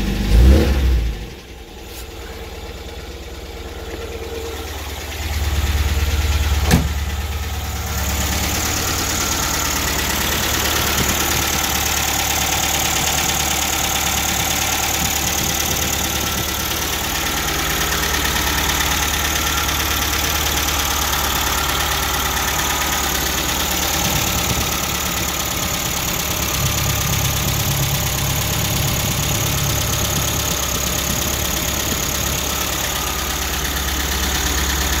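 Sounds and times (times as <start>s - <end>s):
car engine idling with tapping: 0.0s - 35.0s.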